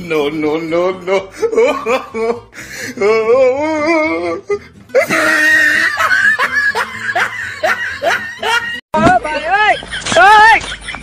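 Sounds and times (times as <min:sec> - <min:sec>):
women laughing: 0:05.0 - 0:08.8, 0:09.4 - 0:11.0.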